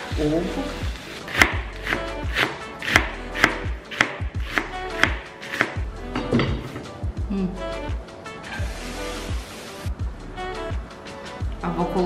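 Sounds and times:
knife chopping cabbage on board: 0:01.3 - 0:05.8.

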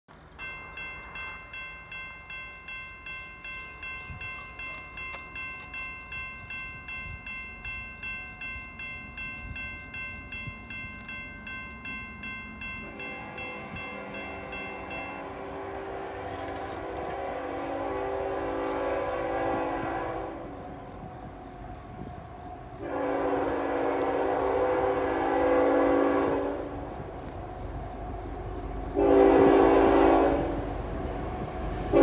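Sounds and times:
electronic crossing bell ringing: 0:00.4 - 0:15.5.

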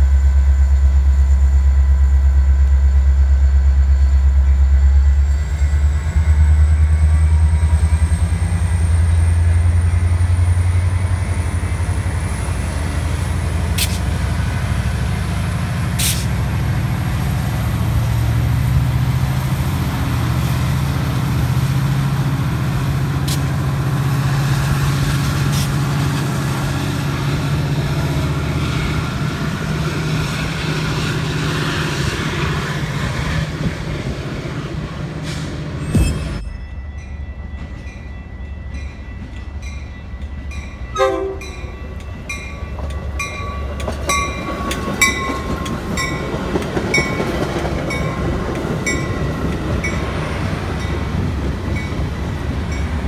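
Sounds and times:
diesel locomotive engine: 0:00.0 - 0:53.0.

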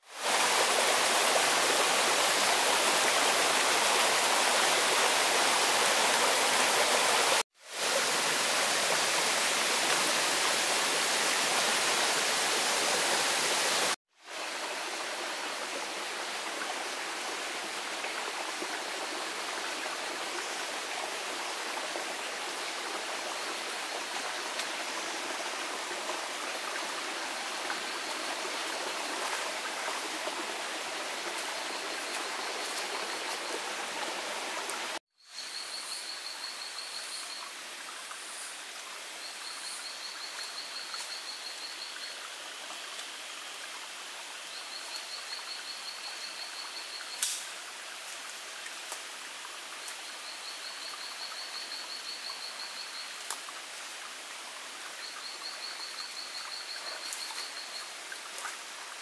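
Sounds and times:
stream water rushing over rocks: 0:00.0 - 0:35.0.

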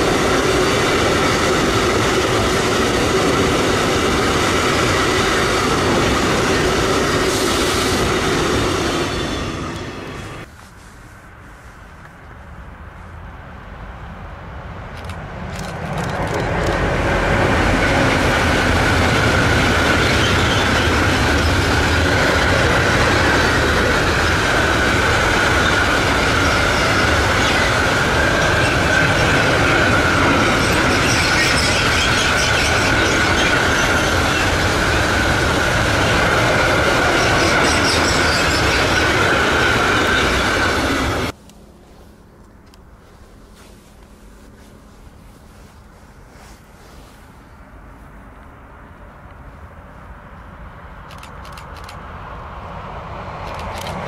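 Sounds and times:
train wheels on rails: 0:00.0 - 0:12.2, 0:14.9 - 0:47.7, 0:51.0 - 0:54.0
high wheel squeal: 0:19.5 - 0:23.6, 0:24.2 - 0:41.3.

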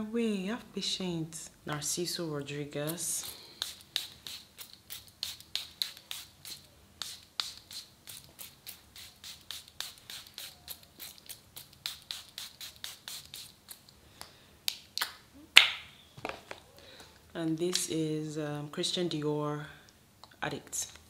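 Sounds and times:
perfume atomizer spraying: 0:02.8 - 0:14.0.

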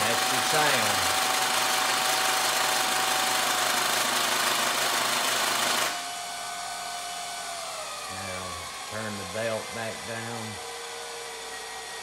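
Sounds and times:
engine and machinery noise: 0:00.0 - 0:12.0.

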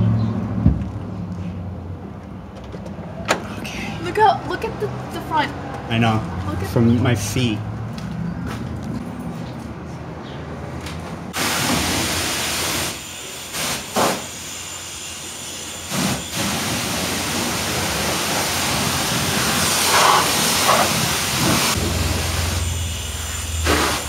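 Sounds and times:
pressure washer spraying water: 0:11.4 - 0:24.0.

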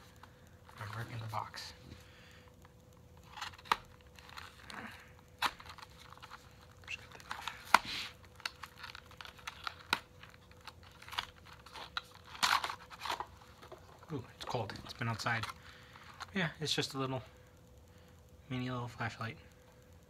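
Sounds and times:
cardboard tearing: 0:05.4 - 0:13.4.

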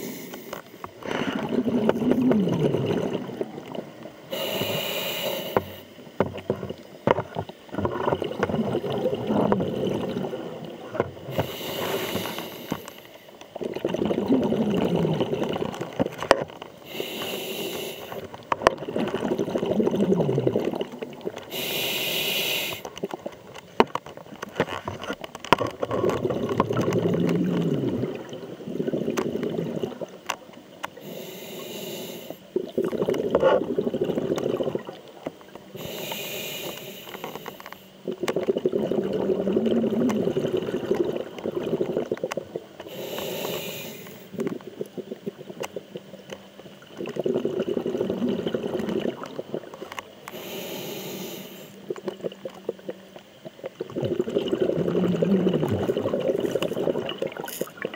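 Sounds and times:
regulator inhale hiss: 0:00.0 - 0:00.9, 0:04.3 - 0:06.0, 0:11.3 - 0:13.4, 0:16.8 - 0:18.4, 0:21.5 - 0:23.0, 0:31.0 - 0:32.6, 0:35.7 - 0:38.2, 0:42.8 - 0:44.4, 0:50.2 - 0:51.9
gurgling exhaust bubbles: 0:01.0 - 0:04.0, 0:07.7 - 0:12.3, 0:13.5 - 0:16.4, 0:18.5 - 0:21.7, 0:25.5 - 0:30.4, 0:32.5 - 0:35.2, 0:38.0 - 0:43.7, 0:46.8 - 0:50.0, 0:51.8 - 0:57.9.

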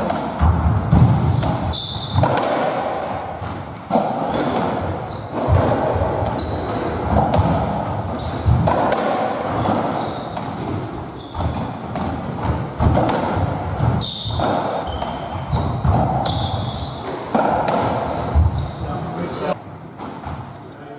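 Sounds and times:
ball smacking off court walls: 0:00.0 - 0:18.5
shoes squeaking on wooden floor: 0:00.9 - 0:02.4, 0:04.1 - 0:08.8, 0:09.5 - 0:19.6.

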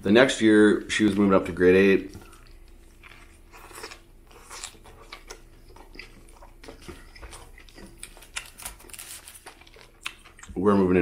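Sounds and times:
person chewing with mouth clicks: 0:02.1 - 0:10.6.

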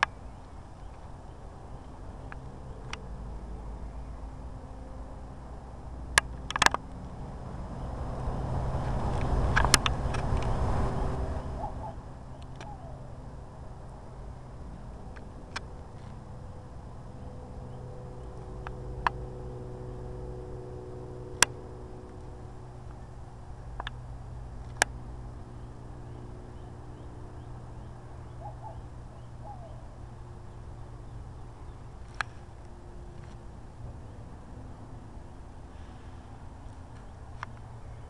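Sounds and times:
low outdoor hum: 0:00.0 - 0:38.0
sharp clicks: 0:06.1 - 0:07.1, 0:09.1 - 0:10.6.

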